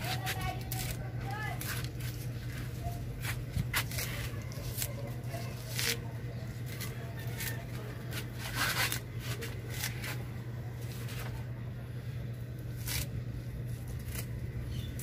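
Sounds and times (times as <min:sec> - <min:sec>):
leaves snapping off branches: 0:00.0 - 0:02.2, 0:03.2 - 0:10.2, 0:12.8 - 0:13.1, 0:13.8 - 0:15.0
leaf rustling: 0:00.0 - 0:10.2, 0:12.7 - 0:15.0
steady low hum: 0:00.0 - 0:15.0.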